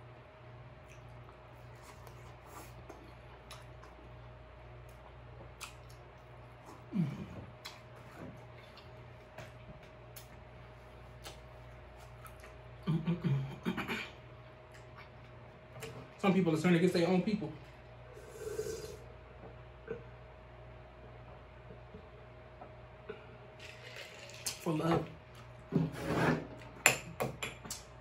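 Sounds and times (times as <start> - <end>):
faint steady hum: 0.0 - 28.0
chewing with lip-smacking: 0.8 - 4.2, 4.8 - 9.0, 11.1 - 12.7
person moaning mmm: 6.9 - 7.4, 18.2 - 19.0.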